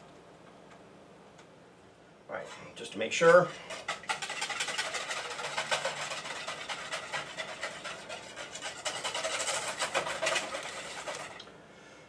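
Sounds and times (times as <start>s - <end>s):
hand whisk beating in bowl: 3.3s - 11.4s.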